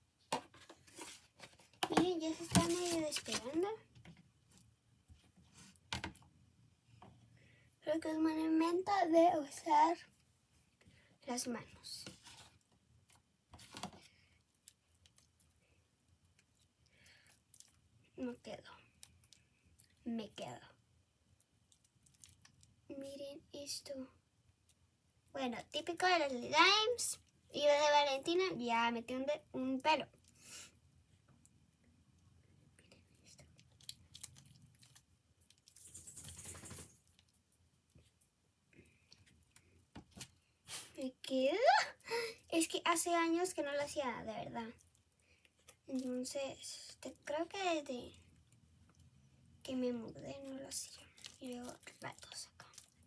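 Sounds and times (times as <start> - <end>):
slime rustling stretch: 50.4 - 53.0.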